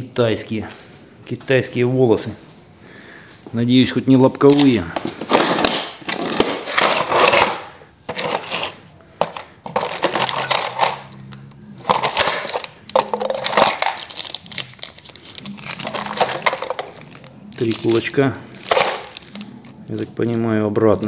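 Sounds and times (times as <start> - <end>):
metal parts clinking in toolbox: 4.5 - 20.0
plastic bags crinkling: 11.8 - 21.0.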